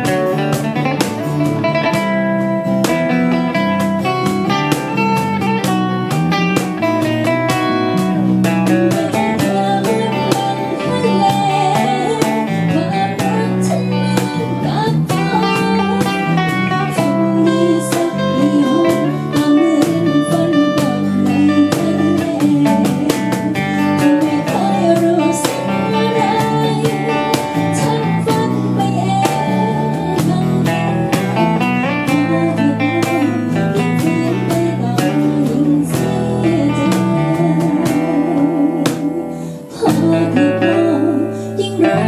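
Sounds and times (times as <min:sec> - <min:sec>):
cajon beat: 0:00.0 - 0:42.0
strummed acoustic guitars: 0:00.0 - 0:42.0.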